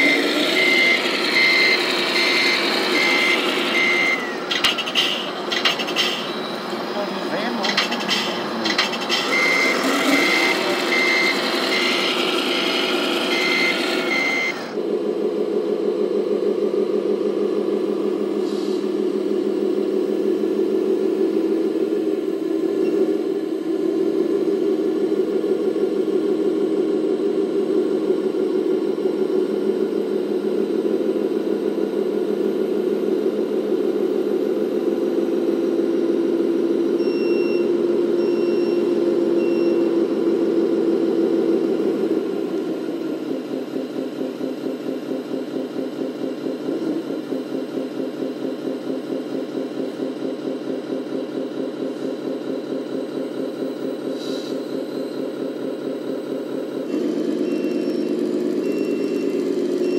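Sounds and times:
short high beeps: 0:00.0 - 0:04.4, 0:09.2 - 0:12.2, 0:13.3 - 0:14.7
toy truck diesel engine sound: 0:00.0 - 0:59.9.

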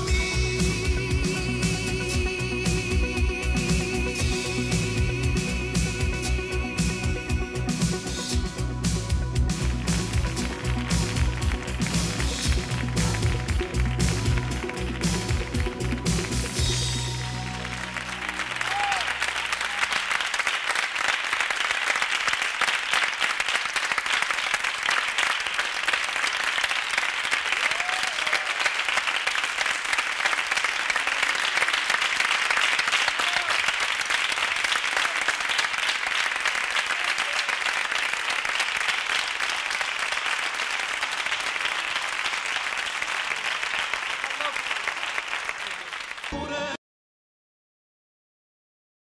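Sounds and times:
music: 0:00.0 - 0:20.6, 0:46.3 - 0:46.8
audience applauding: 0:09.4 - 0:46.8.

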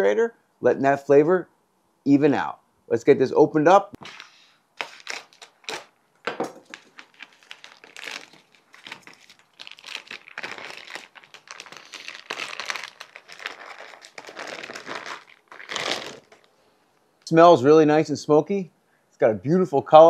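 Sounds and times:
plastic bag crinkling: 0:04.0 - 0:16.6.

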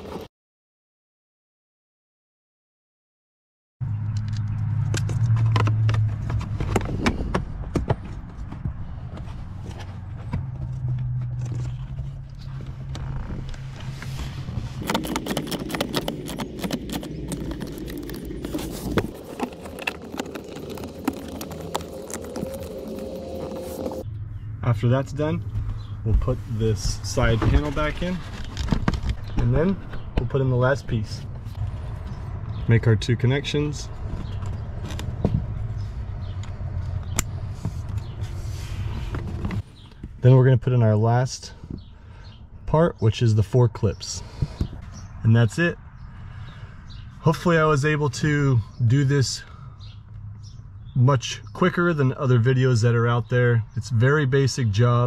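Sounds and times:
plastic parts clicking and scraping: 0:13.4 - 0:24.0
plastic trim panel handled: 0:14.8 - 0:22.5.

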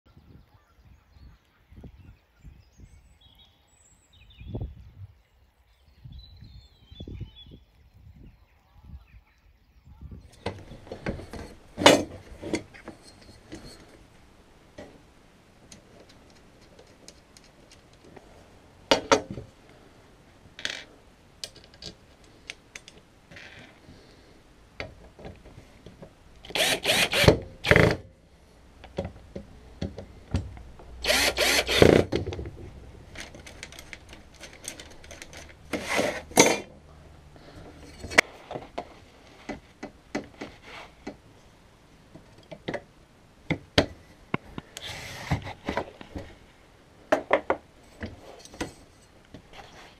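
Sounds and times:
cordless drill running: 0:26.5 - 0:27.9, 0:31.0 - 0:32.1
metal parts clicking and knocking: 0:31.1 - 0:36.7.

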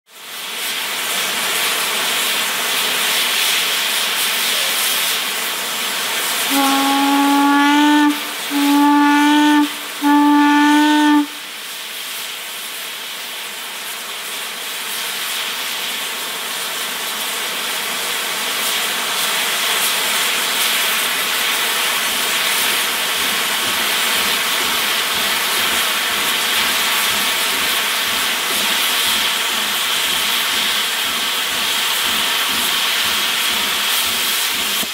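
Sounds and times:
steam hissing: 0:00.1 - 0:34.9
steam whistle blasts: 0:06.4 - 0:11.8.

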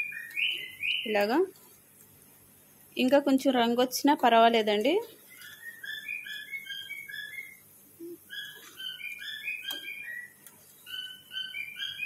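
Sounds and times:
bird chirping: 0:00.0 - 0:01.4, 0:05.1 - 0:12.0.

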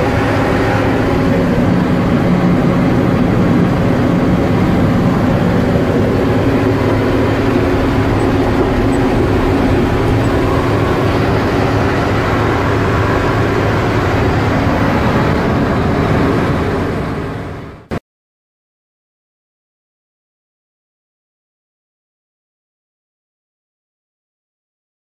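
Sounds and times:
truck diesel engine cruising: 0:00.0 - 0:18.0.

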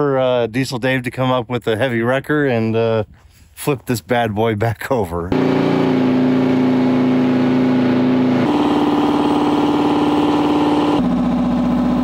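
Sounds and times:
diesel truck engine droning: 0:05.2 - 0:12.0.

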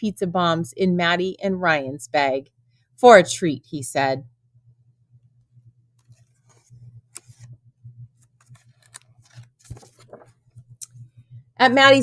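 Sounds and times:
book pages turning: 0:06.0 - 0:07.6, 0:08.2 - 0:10.7.

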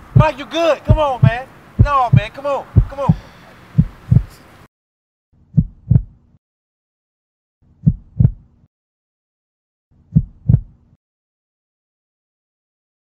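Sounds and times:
heartbeat double thumps: 0:00.0 - 0:04.4, 0:05.4 - 0:06.4, 0:07.8 - 0:08.7, 0:10.0 - 0:11.0.

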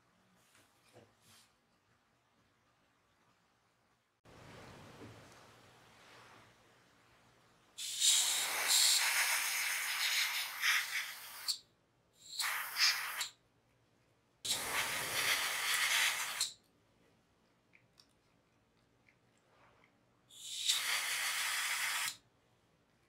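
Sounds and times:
airbrush spraying hiss: 0:07.8 - 0:11.5, 0:14.5 - 0:16.5, 0:20.4 - 0:22.2.

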